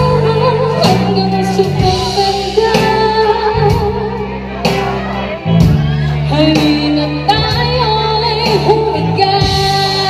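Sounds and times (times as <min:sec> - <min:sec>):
musical accompaniment: 0:00.0 - 0:10.0
woman singing into microphone: 0:00.0 - 0:10.0.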